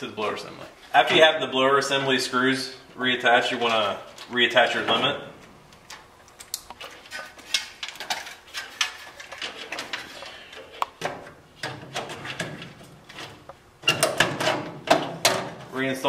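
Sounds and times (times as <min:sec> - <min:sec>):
sheet metal parts clicking and rattling: 0:05.7 - 0:15.7.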